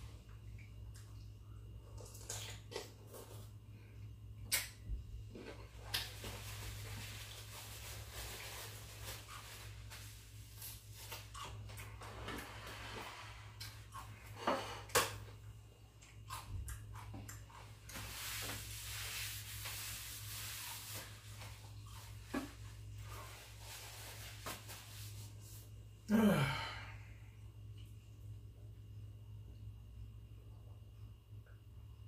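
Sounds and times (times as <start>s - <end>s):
person sighing: 26.1s - 27.3s
breathing: 26.2s - 27.4s.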